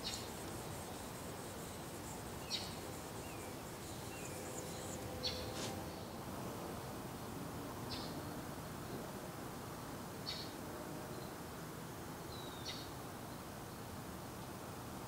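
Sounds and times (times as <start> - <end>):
small bird chirping: 0.0 - 5.7
faint background hiss: 0.0 - 15.0.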